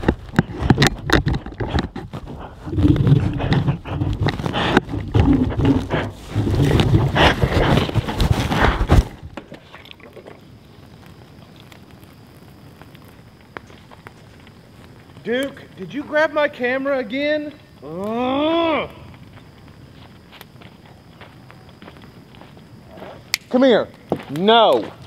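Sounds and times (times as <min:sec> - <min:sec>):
knocks and scrapes on microphone: 0:00.0 - 0:09.3.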